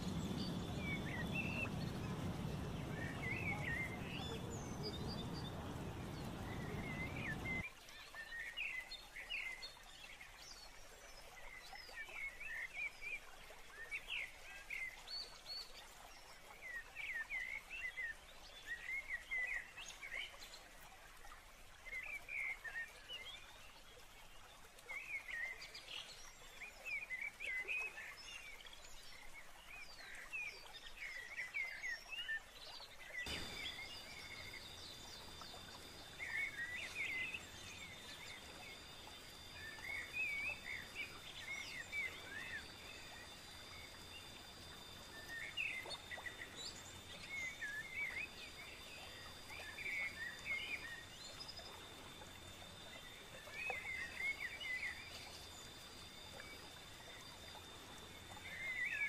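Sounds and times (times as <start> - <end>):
low background rush: 0.0 - 7.6, 33.3 - 51.0
small birds chirping: 0.0 - 7.6, 33.3 - 59.0.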